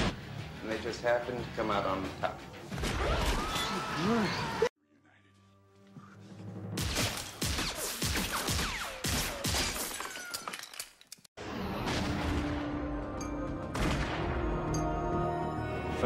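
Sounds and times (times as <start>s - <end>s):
film score music: 0.0s - 9.1s, 11.4s - 16.0s
gunshots: 6.8s - 10.2s.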